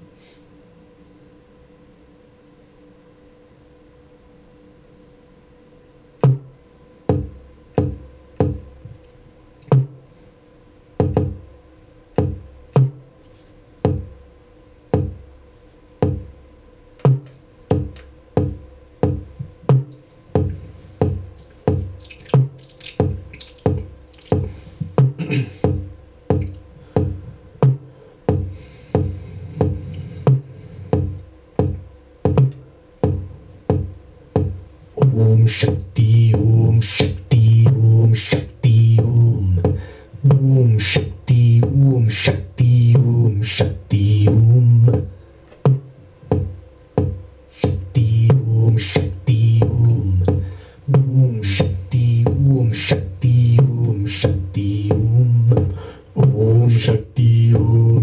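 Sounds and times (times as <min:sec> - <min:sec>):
faint steady hum: 0:00.0 - 0:58.0
drum machine kick and snare beat: 0:06.2 - 0:06.5, 0:07.1 - 0:08.7, 0:09.7 - 0:10.0, 0:11.0 - 0:11.4, 0:12.2 - 0:13.0, 0:13.8 - 0:14.1, 0:14.9 - 0:15.2, 0:16.0 - 0:16.3, 0:17.0 - 0:36.4, 0:39.6 - 0:41.2, 0:43.6 - 0:48.4, 0:49.0 - 0:56.4.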